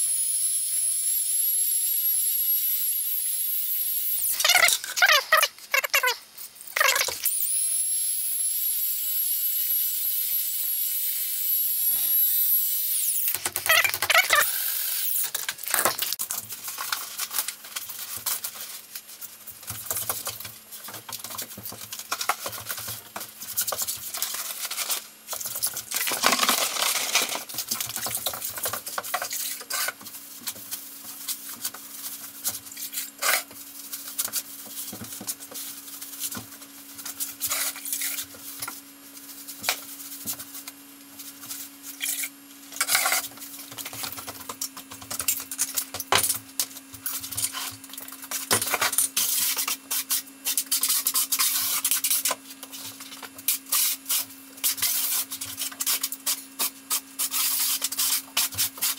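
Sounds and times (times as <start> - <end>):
electric drill mixer whining: 7.2 - 15.3.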